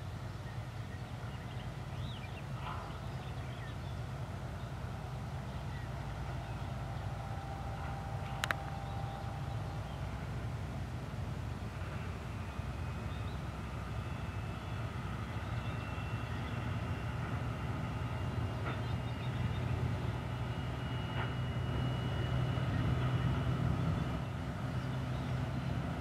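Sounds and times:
diesel locomotive engine drone: 0:00.0 - 0:26.0
brief clicks: 0:08.3 - 0:08.8.

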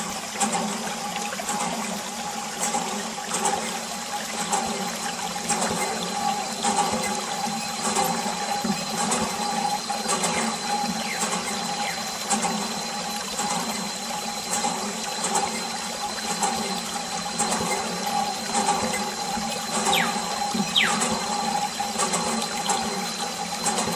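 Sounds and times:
water pump humming: 0:00.0 - 0:23.9.

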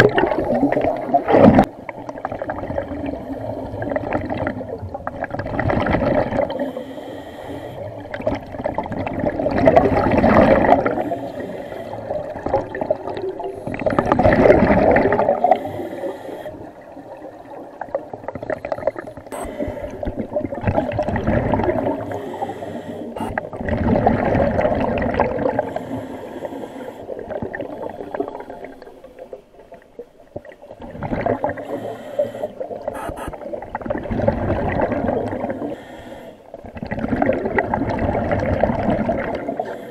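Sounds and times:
air bubbles gurgling underwater: 0:00.0 - 0:06.8, 0:07.8 - 0:22.5, 0:23.1 - 0:35.8, 0:36.5 - 0:39.9
scuba regulator breathing: 0:06.5 - 0:08.0, 0:09.8 - 0:12.3, 0:13.4 - 0:14.3, 0:15.3 - 0:16.9, 0:18.5 - 0:20.2, 0:21.8 - 0:23.6, 0:25.5 - 0:29.2, 0:31.5 - 0:33.4, 0:35.4 - 0:36.6, 0:39.5 - 0:39.9.

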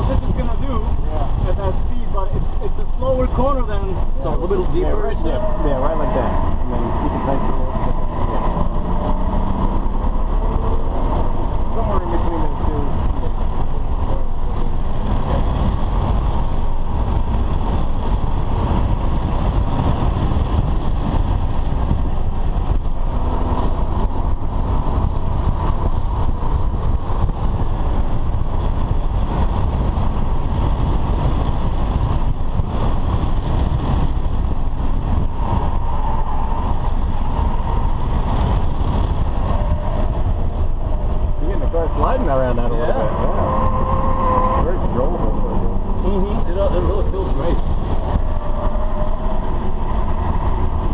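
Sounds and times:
car interior road noise: 0:00.0 - 0:50.9.

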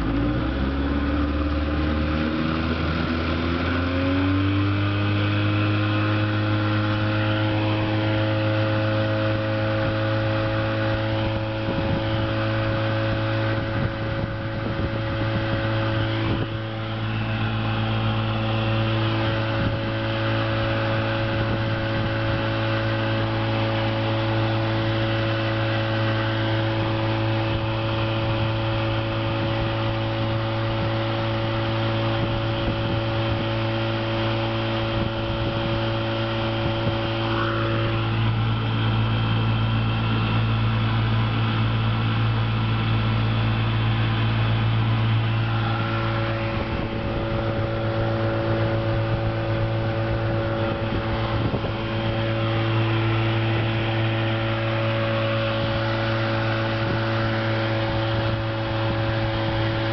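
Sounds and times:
outboard motor drone: 0:00.0 - 0:59.9
wake water rushing: 0:44.0 - 0:59.9.

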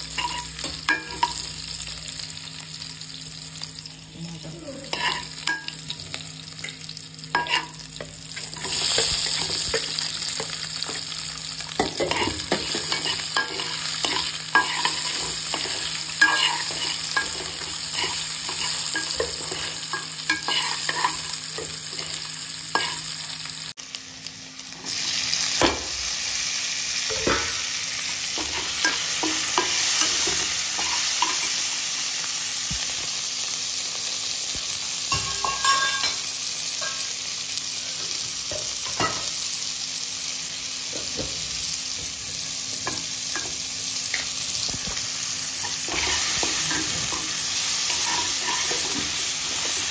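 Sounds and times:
food sizzling in hot oil: 0:00.0 - 0:49.9
metal spoon scraping a pan: 0:04.8 - 0:05.7, 0:07.3 - 0:11.0, 0:11.8 - 0:23.1, 0:45.6 - 0:49.9.

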